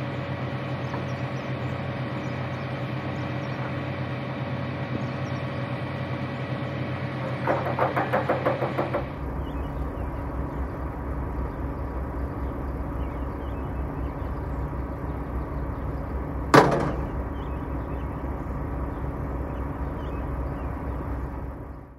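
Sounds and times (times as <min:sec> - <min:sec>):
diesel engine idling: 0:00.0 - 0:21.9
sharp bang: 0:16.5 - 0:17.2.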